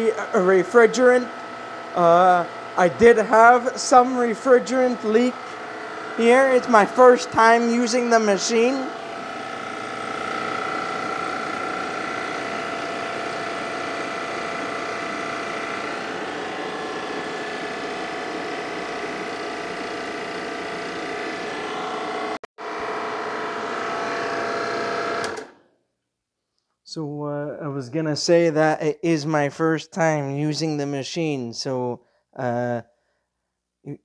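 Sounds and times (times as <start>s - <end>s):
motor and compressor hum: 0.0s - 25.7s.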